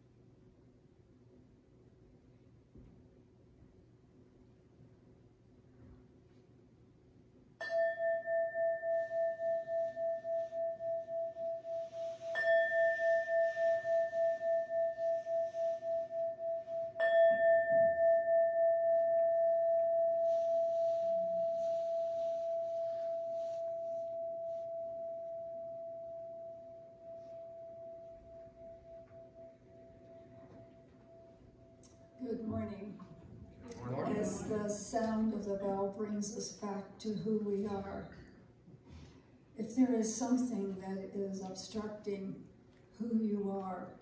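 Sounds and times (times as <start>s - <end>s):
bell ringing with pulsing tone: 7.6s - 32.7s.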